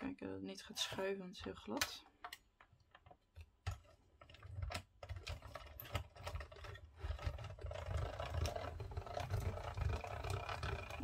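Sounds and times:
hand-cranked machine rumble and clicking: 2.3 - 11.0.

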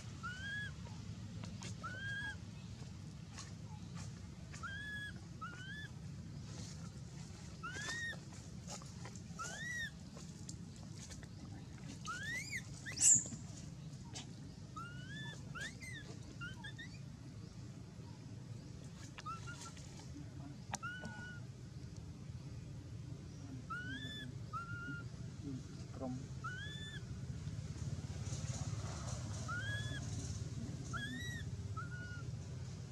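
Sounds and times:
baby monkey coo calls: 0.0 - 1.0, 1.6 - 2.5, 4.5 - 6.0, 7.4 - 8.4, 9.4 - 10.0, 12.0 - 13.4, 14.7 - 17.1, 19.0 - 20.0, 20.6 - 21.5, 23.6 - 25.3, 26.3 - 27.4, 28.0 - 32.6
low steady hum: 0.0 - 32.9
monkey squealing: 0.1 - 0.8, 1.7 - 2.4, 4.6 - 6.0, 7.6 - 8.2, 9.4 - 10.0, 12.1 - 13.3, 14.8 - 17.0, 19.2 - 19.8, 20.8 - 21.4, 23.7 - 25.1, 26.4 - 27.0, 29.4 - 30.2, 30.9 - 32.3.

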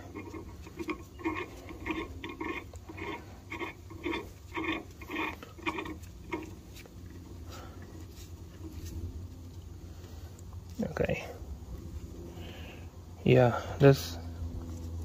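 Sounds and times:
bolt threads scraping: 0.0 - 7.2.

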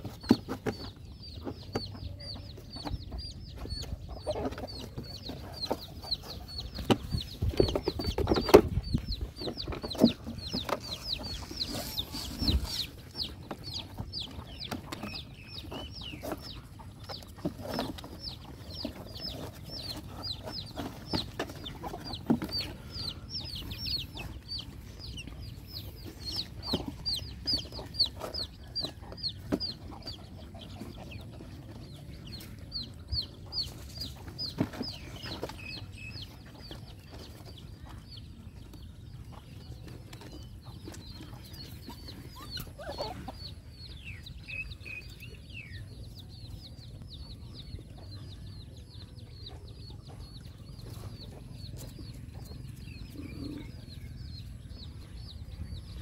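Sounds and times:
high peeping: 0.0 - 56.0.

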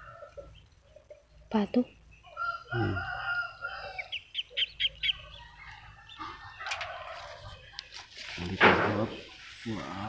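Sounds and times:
rooster crowing: 2.3 - 4.2, 5.2 - 7.6.

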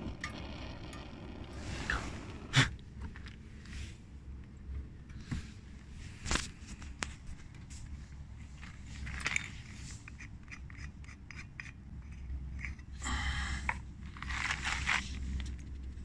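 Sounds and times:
steady low rumble: 0.0 - 10.2, 11.8 - 16.0
handling scrapes and clicks: 6.2 - 13.0, 13.7 - 16.0.

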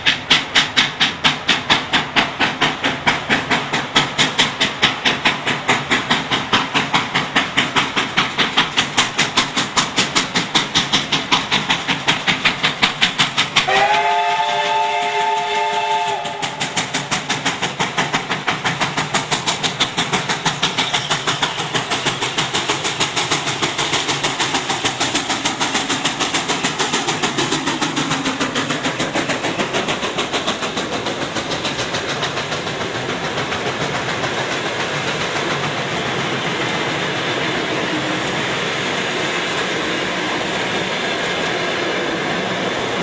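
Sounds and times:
steam locomotive chuffing: 0.0 - 43.0
train coaches wheel clatter: 0.0 - 43.0.

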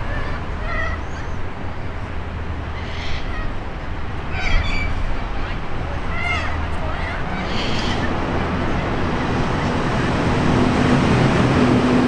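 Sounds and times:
low traffic rumble: 0.0 - 12.0.

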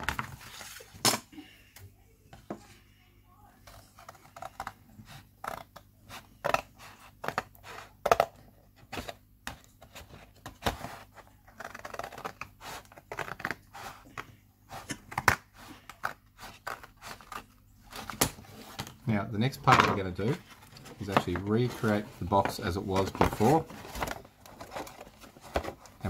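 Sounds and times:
scissors cutting cardboard: 3.7 - 18.9.

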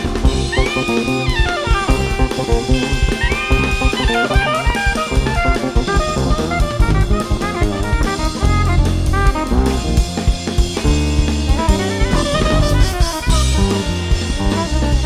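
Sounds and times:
drum kit with cymbals: 0.0 - 15.0
jazz band playing: 0.0 - 15.0
lead melody bending in pitch: 0.0 - 15.0.

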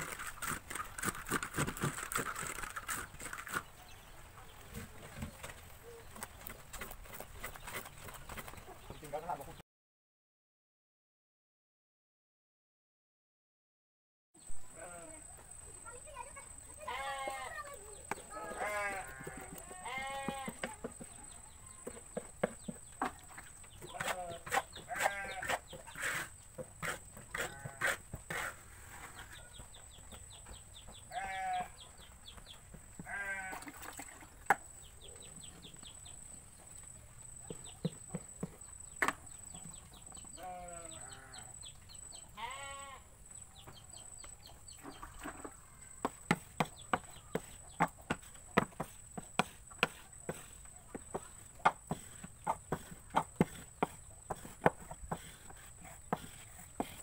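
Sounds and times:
goats bleating: 16.8 - 17.6, 18.3 - 20.7, 23.9 - 25.5, 31.1 - 31.7, 33.0 - 33.7, 40.4 - 41.5, 42.4 - 43.1.

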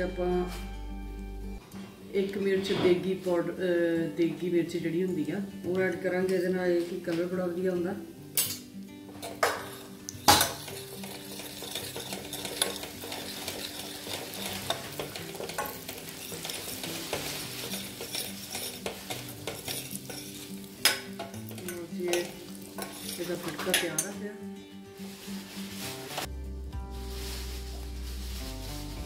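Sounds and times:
chillies sizzling in ghee: 8.1 - 29.0
ladle clinking on pan: 9.2 - 24.1
ladle scraping saucepan: 9.2 - 24.1.

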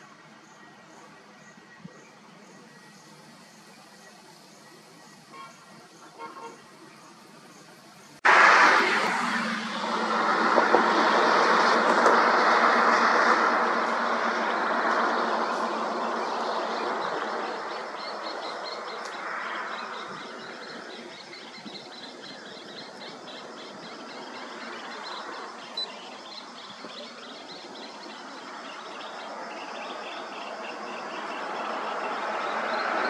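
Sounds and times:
car driving off: 6.7 - 33.0.

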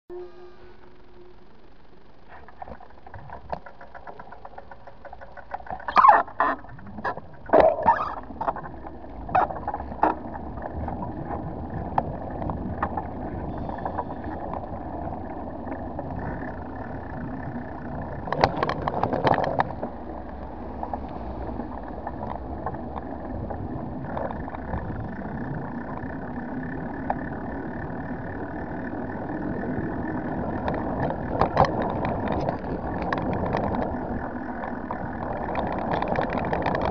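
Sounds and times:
rolling and wind noise: 0.1 - 36.9
sharp rattling knocks: 3.0 - 6.0.

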